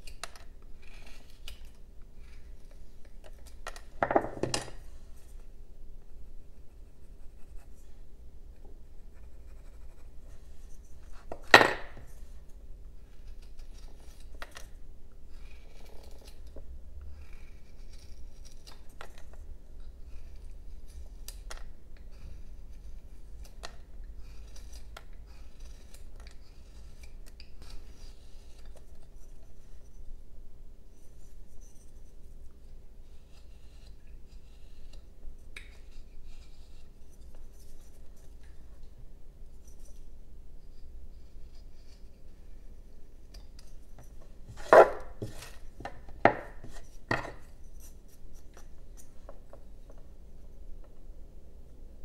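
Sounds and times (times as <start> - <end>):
knife cutting and scraping wood: 0.0 - 2.6, 15.3 - 19.4, 33.0 - 38.4, 43.3 - 49.1.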